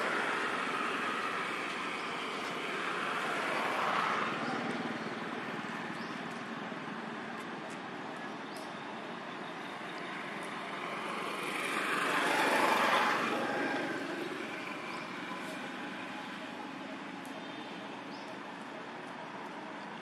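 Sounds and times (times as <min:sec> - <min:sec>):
outdoor background noise: 0:00.0 - 0:20.0
vehicle passing: 0:10.2 - 0:16.5.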